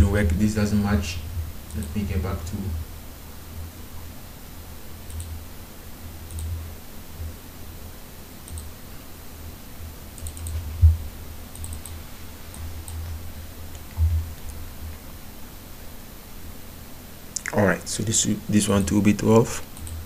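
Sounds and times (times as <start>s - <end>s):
computer mouse clicks: 1.7s - 2.0s, 5.0s - 5.4s, 6.2s - 6.6s, 8.4s - 8.7s, 10.2s - 10.7s, 11.5s - 13.0s, 19.6s - 20.0s
dull low thumps: 10.6s - 11.2s.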